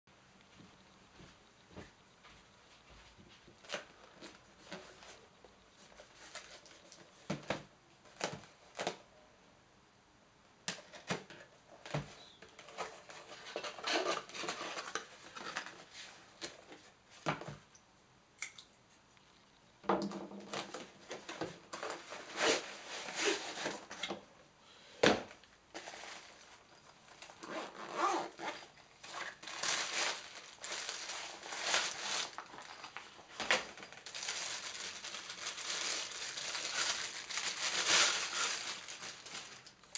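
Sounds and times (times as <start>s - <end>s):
fabric bag rustling: 25.7s - 39.9s
plastic wrap crinkling: 25.7s - 39.9s.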